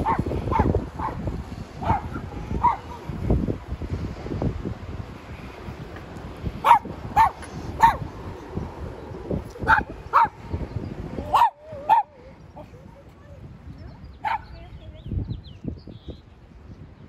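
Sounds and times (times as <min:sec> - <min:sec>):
dog barking: 0:00.0 - 0:01.2, 0:01.8 - 0:03.0, 0:06.6 - 0:08.0, 0:09.7 - 0:10.4, 0:11.3 - 0:12.1, 0:14.2 - 0:14.6.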